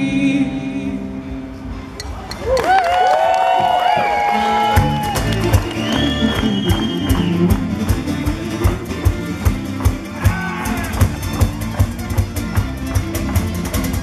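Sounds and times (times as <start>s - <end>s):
guitar: 0.0s - 14.0s
fiddle: 3.7s - 14.0s
steady drum beat: 4.8s - 14.0s.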